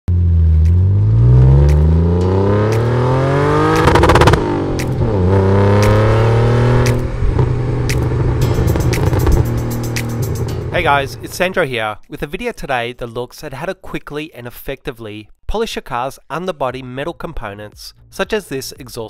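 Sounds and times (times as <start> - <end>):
car engine accelerating: 0.1 - 11.5.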